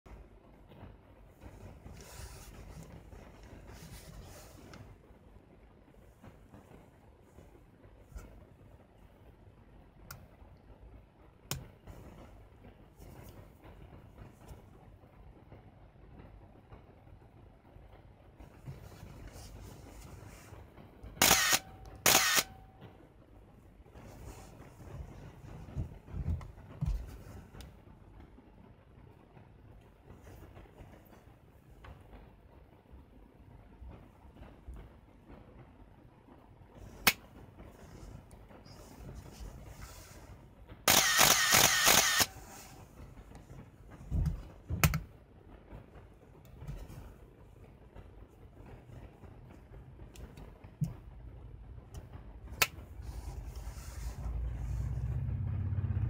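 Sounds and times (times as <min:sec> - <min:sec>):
film advance motor whir: 0:21.2 - 0:22.5, 0:40.9 - 0:42.3
camera shutter release: 0:21.2 - 0:22.6, 0:40.9 - 0:42.4.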